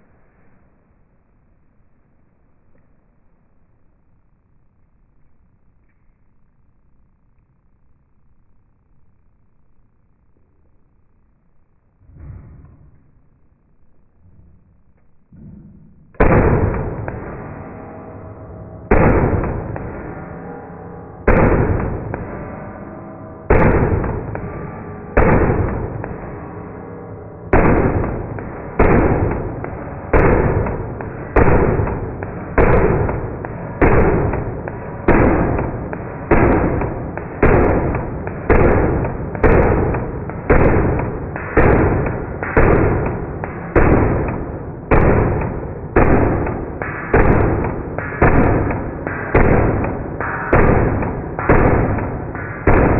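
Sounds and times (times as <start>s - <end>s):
slowed gunshot booms: 15.3s - 52.9s.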